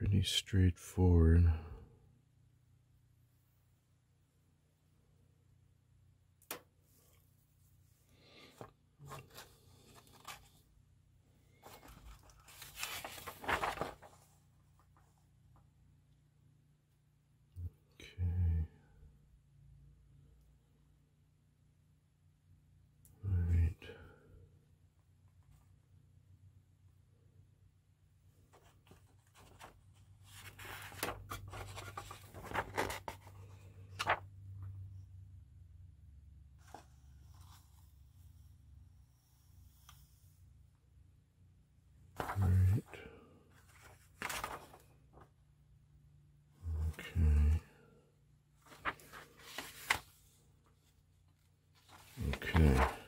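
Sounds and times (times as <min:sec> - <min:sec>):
paper pages rustling: 0:08.4 - 0:10.8, 0:11.4 - 0:15.0, 0:28.5 - 0:34.3, 0:42.2 - 0:42.6, 0:43.6 - 0:45.4, 0:48.6 - 0:53.0.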